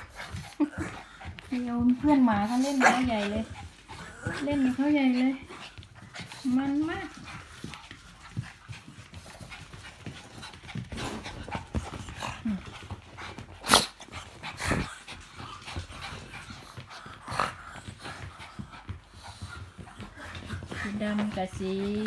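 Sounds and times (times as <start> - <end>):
dogs panting: 0.0 - 22.0
dogs scuffling: 0.0 - 22.0.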